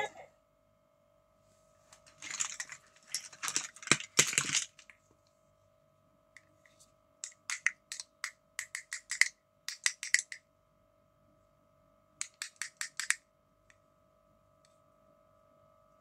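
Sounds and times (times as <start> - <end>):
plastic toys clattering: 2.0 - 5.0, 7.2 - 8.1, 8.7 - 10.4
sharp plastic clicks: 7.2 - 10.4, 12.2 - 13.2.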